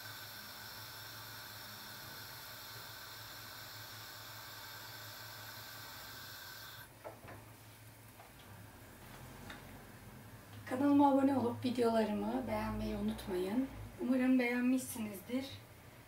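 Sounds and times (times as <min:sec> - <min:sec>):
gas burner hissing: 0:00.0 - 0:06.9.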